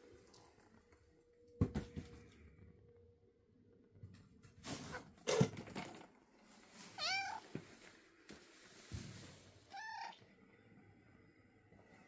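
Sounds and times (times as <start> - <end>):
cat meowing: 7.0 - 7.5, 9.7 - 10.2.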